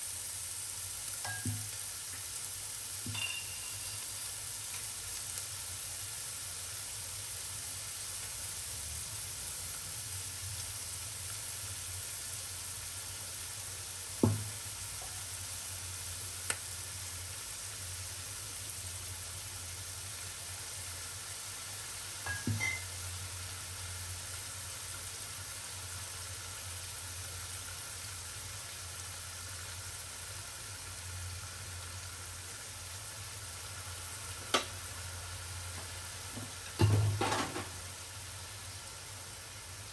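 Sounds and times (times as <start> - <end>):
meat frying in a wok: 0.0 - 39.9
sharp knock: 14.2 - 14.6.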